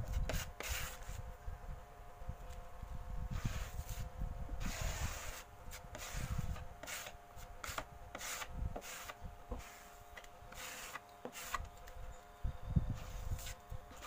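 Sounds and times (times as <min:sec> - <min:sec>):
putty knife scraping wood: 0:04.7 - 0:11.7.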